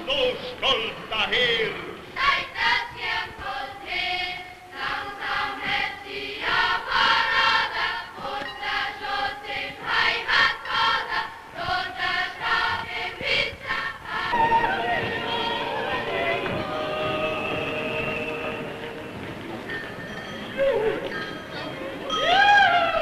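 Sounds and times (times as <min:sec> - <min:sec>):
choir singing: 0:02.2 - 0:19.7.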